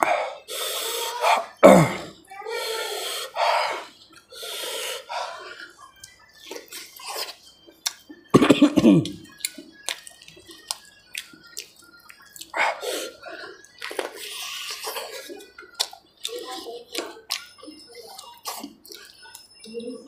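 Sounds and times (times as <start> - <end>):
man chewing and lip-smacking: 5.4 - 19.7.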